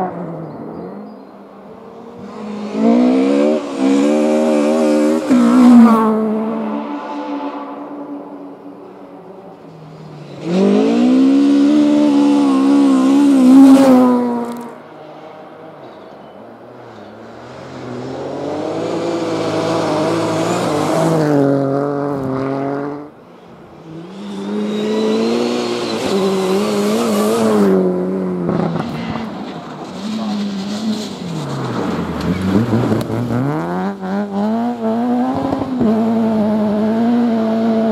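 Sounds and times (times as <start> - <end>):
rally car engines revving: 0.0 - 37.9.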